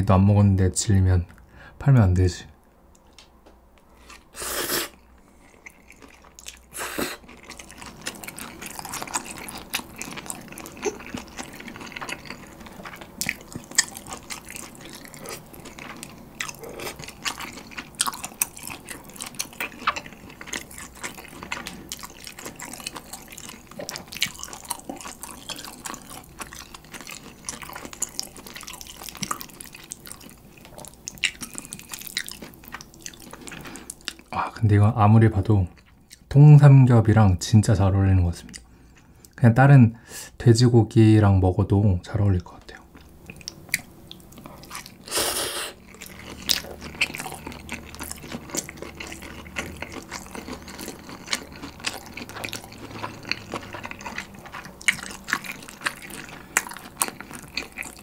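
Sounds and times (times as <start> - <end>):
wet chewing: 4.0 - 34.4, 42.7 - 58.0
slurping noodles: 44.6 - 47.4.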